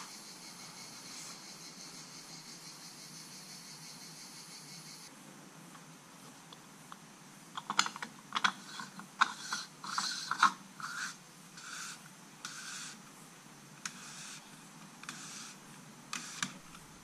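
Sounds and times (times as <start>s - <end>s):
plastic cap clicking and scraping: 7.6s - 11.7s.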